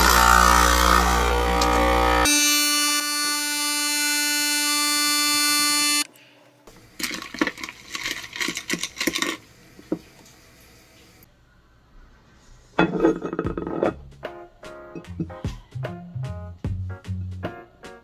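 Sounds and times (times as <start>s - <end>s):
electronic buzzing tone: 0.0s - 6.1s.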